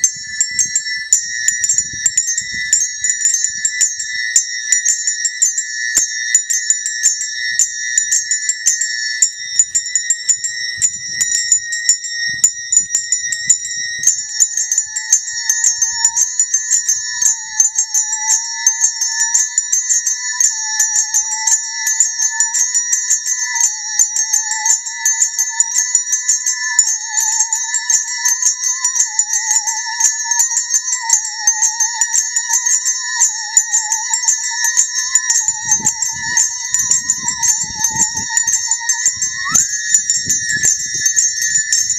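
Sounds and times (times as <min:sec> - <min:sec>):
handbells ringing: 0:00.0 - 0:41.9
musical saw wavering tone: 0:34.4 - 0:41.9.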